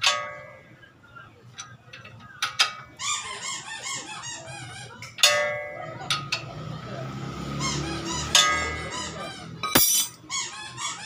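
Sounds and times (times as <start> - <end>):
metal clang ringing: 5.2 - 6.4, 9.6 - 10.2.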